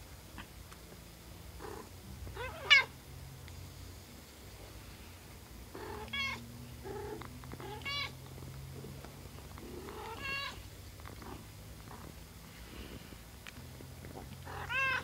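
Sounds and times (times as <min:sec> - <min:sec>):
cat purring: 0:00.3 - 0:02.6, 0:04.6 - 0:15.0
kittens mewing: 0:09.6 - 0:12.1, 0:14.1 - 0:15.0.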